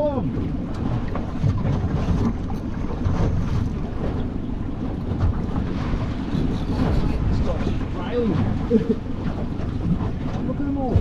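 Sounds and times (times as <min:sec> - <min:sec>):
choppy sea: 0:00.0 - 0:11.0
wind buffeting microphone: 0:00.0 - 0:11.0.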